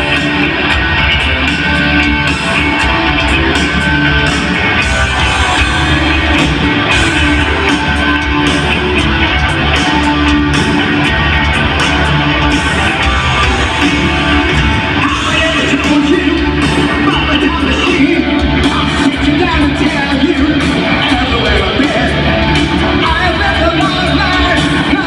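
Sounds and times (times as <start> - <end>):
live heavy metal band: 0.0 - 25.0.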